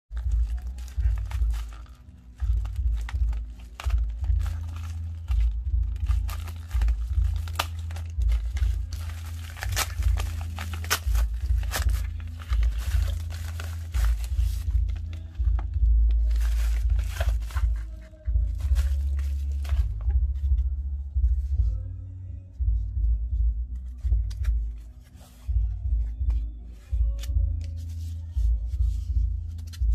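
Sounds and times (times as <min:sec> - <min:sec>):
plastic pouches crinkling: 0:00.2 - 0:20.1
plastic tearing: 0:00.2 - 0:20.1.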